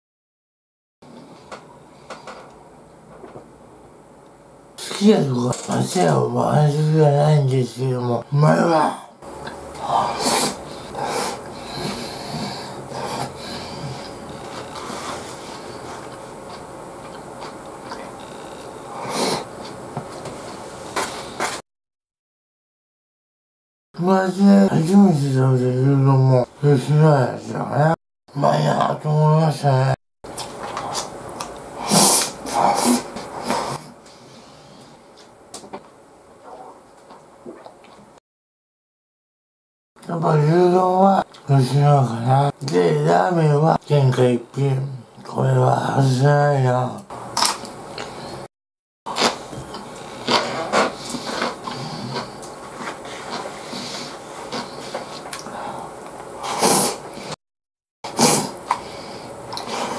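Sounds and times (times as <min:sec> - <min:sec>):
nose breathing: 0:09.8 - 0:16.1, 0:50.0 - 0:57.4, 0:58.1 - 0:59.9
man slurping food: 0:09.8 - 0:16.2, 0:18.2 - 0:19.7, 0:31.8 - 0:35.0, 0:49.1 - 0:57.4, 0:58.1 - 0:59.9
man slurping rice: 0:56.4 - 0:57.4, 0:58.1 - 0:59.9.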